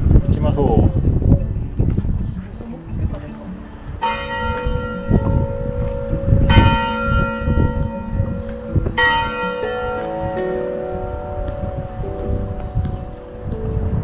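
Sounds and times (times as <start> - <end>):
wind rumble on microphone: 0.0 - 14.0
bell ringing: 4.0 - 14.0.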